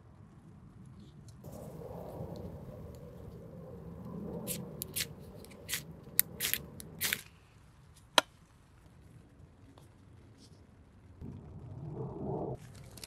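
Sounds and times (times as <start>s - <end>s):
fire steel rod scraping: 4.3s - 7.4s.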